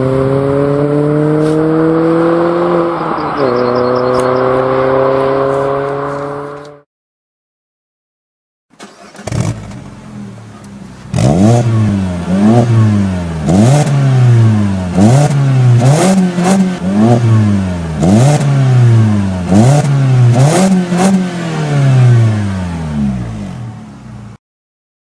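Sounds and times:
car engine revving: 0.0 - 6.8, 8.8 - 24.4.

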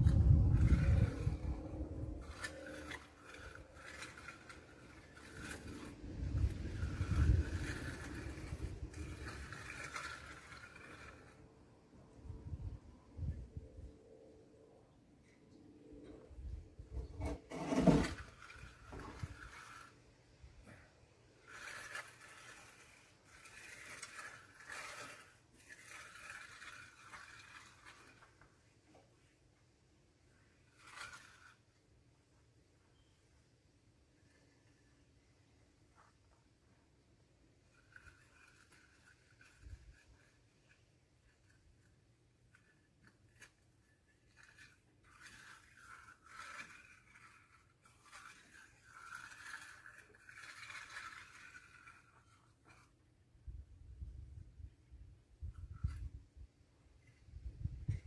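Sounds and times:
faint swishing of truck washing: 0.0 - 12.2
scraping and rubbing: 0.0 - 14.2, 15.2 - 29.4, 30.2 - 33.2, 34.0 - 58.0.

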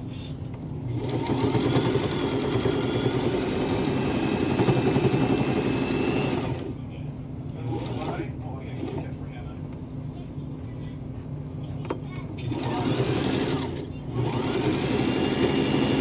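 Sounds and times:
electric sewing machine running: 0.9 - 6.8, 7.7 - 9.1, 12.5 - 16.0.

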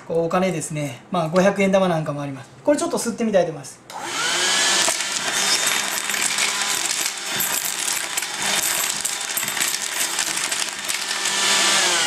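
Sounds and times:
cordless vacuum motor whining: 3.9 - 7.3, 9.2 - 12.0
coins clattering in a pipe: 4.7 - 12.0.

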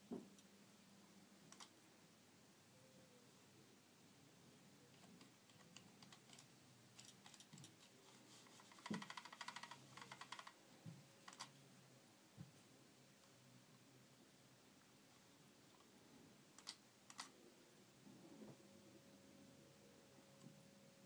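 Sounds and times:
computer mouse clicks: 1.5 - 1.7, 4.9 - 7.9, 8.5 - 10.6, 11.2 - 11.6, 16.6 - 17.3.

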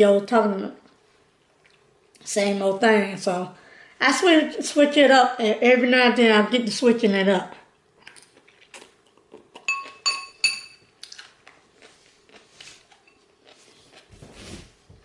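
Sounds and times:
fork clinking on ceramic bowl: 9.6 - 10.9.

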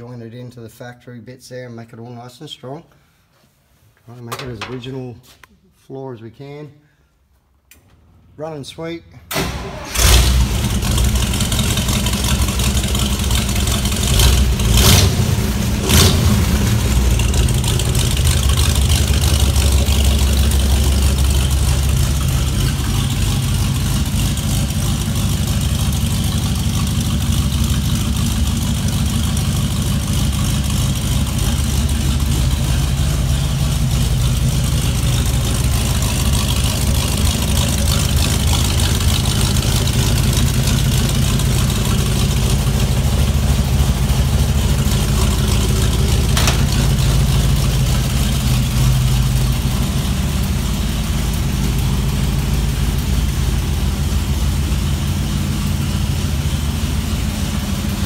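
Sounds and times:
truck engine running: 9.8 - 58.0
sharp knocks: 46.4 - 47.0.

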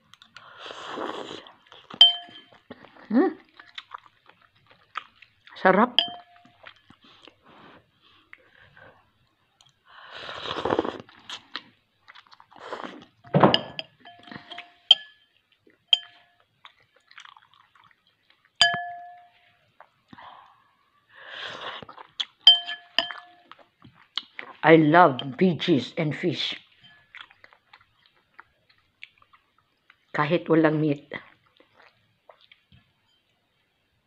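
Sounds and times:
person slurping soup: 0.4 - 1.7, 10.0 - 11.6, 12.5 - 13.2
spoon clinking against bowl: 2.0 - 2.6, 6.0 - 6.9, 13.3 - 15.3, 15.9 - 16.4, 18.6 - 19.4, 22.4 - 23.5, 25.2 - 25.4.

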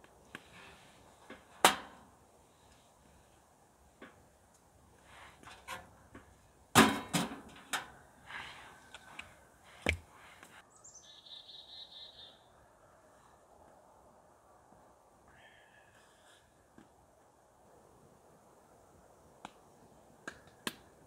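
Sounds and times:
high bird call: 10.7 - 12.5.

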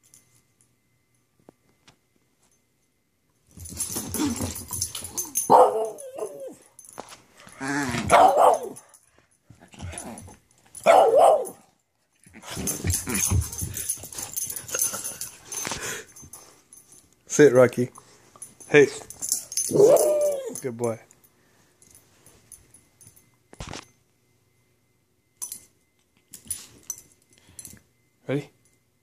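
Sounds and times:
small dog barking: 5.5 - 6.5, 8.0 - 8.8, 10.8 - 11.6.

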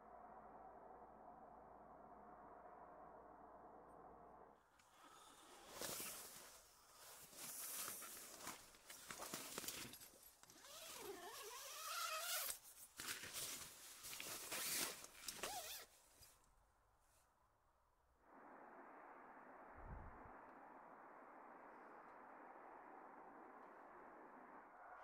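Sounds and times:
nylon fabric rustling: 5.8 - 16.1
zipper being drawn open: 10.6 - 12.6, 14.2 - 15.9.

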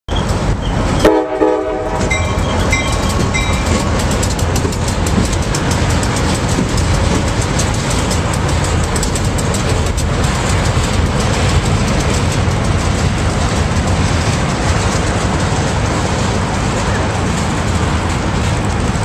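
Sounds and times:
diesel locomotives rumbling past: 0.1 - 19.0
wheels clicking on rails: 0.1 - 19.0
diesel locomotive horn blast: 1.0 - 2.5
locomotive bell ringing: 2.0 - 4.2.

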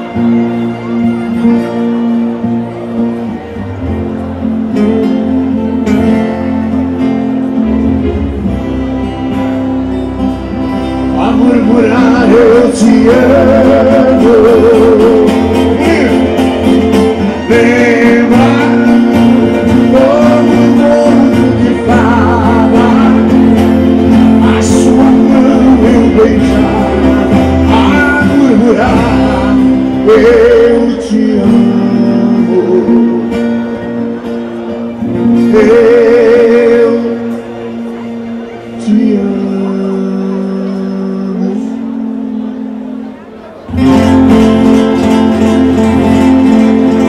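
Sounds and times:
acoustic guitars playing: 0.0 - 47.0
man singing with vibrato: 10.7 - 34.2, 34.9 - 47.0.

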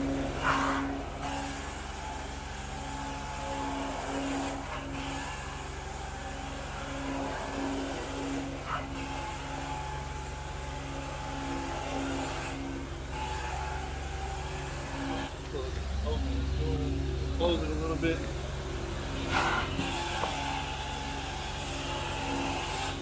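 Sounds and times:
extraction machine hum: 0.0 - 23.0
extraction wand suction hiss: 19.0 - 23.0.

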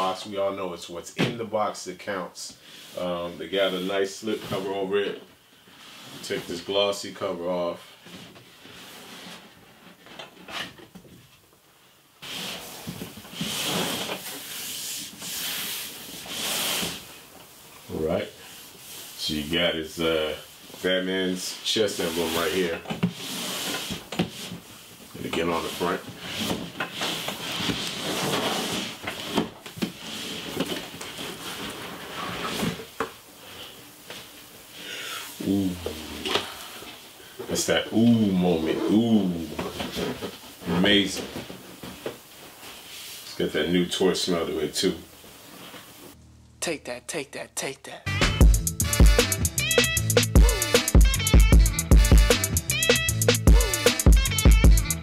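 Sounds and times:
cardboard box scraping on table: 12.2 - 17.2, 22.0 - 24.7, 25.6 - 33.0.

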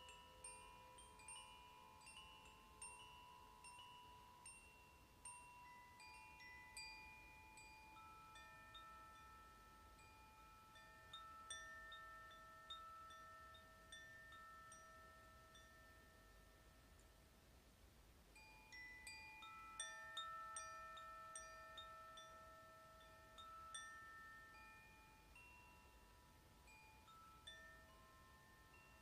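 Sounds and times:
wind chime ringing: 0.0 - 17.0, 18.4 - 29.0.

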